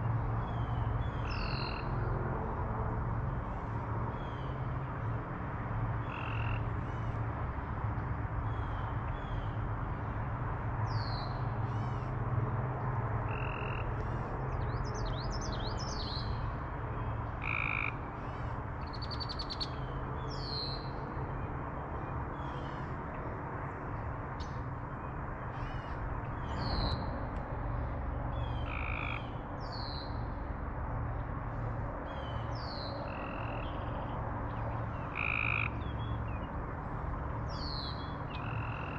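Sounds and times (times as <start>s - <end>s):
frogs calling: 6.0s - 7.0s, 13.3s - 13.9s, 17.4s - 19.8s, 28.3s - 29.4s, 32.9s - 36.4s, 37.6s - 38.9s.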